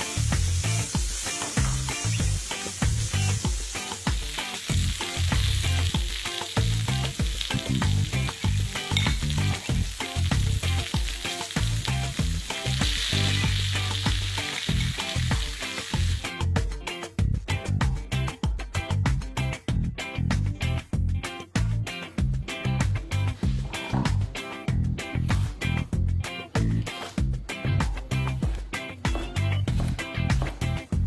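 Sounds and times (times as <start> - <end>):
food sizzling in grill pan: 0.0 - 16.4
background music with steady beat: 0.0 - 31.0.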